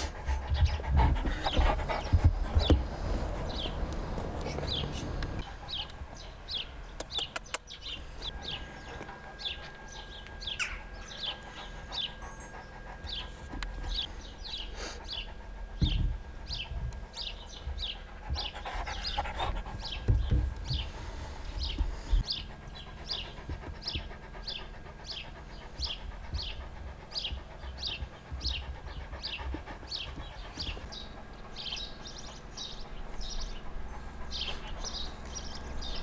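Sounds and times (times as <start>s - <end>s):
large dog panting: 0.0s - 36.0s
small birds chirping: 0.0s - 36.0s.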